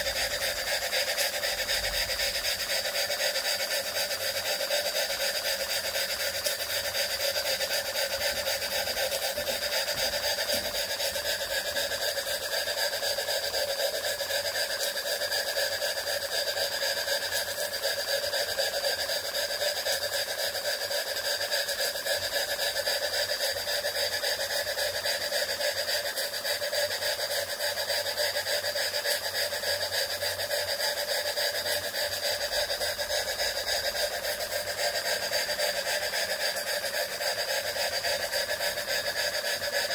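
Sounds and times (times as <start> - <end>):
steam engine running: 0.0 - 39.9.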